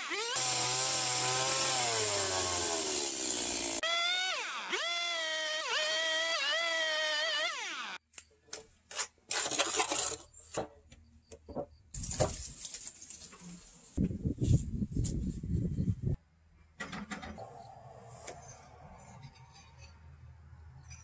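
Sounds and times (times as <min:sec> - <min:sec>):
chainsaw cutting wood: 0:00.0 - 0:08.0.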